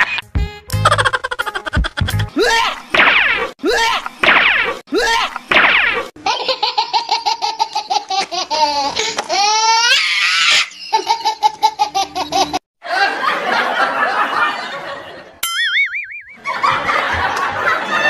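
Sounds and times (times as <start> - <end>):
cartoon laughter: 0.8 - 2.9, 6.2 - 18.0
warbling cartoon tone: 15.4 - 16.5.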